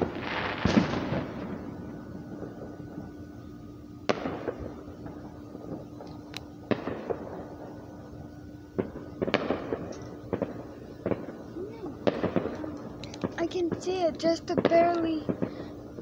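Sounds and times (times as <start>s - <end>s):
distant fireworks bangs: 0.0s - 16.0s
fireworks crackle: 0.0s - 16.0s
steady low hum: 0.0s - 16.0s.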